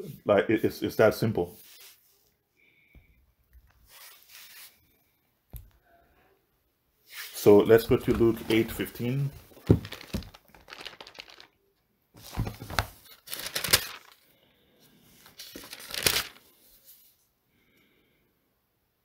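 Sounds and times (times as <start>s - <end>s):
book pages flipping: 3.6s - 4.8s, 7.1s - 11.6s, 12.2s - 14.2s, 15.2s - 17.2s.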